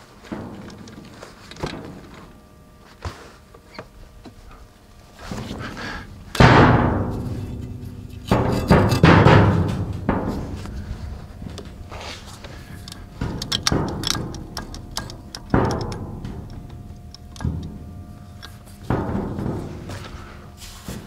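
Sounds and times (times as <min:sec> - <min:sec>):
heavy knocks on steel bucket: 0:05.2 - 0:20.3.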